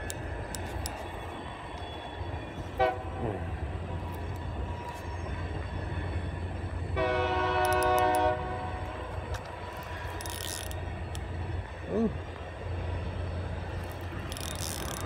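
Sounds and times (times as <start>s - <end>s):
distant train horn: 1.8s - 3.6s, 6.9s - 9.2s.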